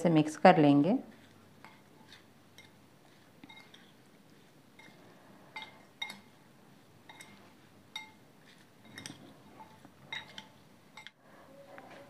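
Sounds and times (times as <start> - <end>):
metal spoon clinking against glass bowl: 1.6 - 2.8, 3.4 - 4.0, 4.8 - 5.0, 5.6 - 6.4, 7.0 - 8.2, 8.8 - 11.2.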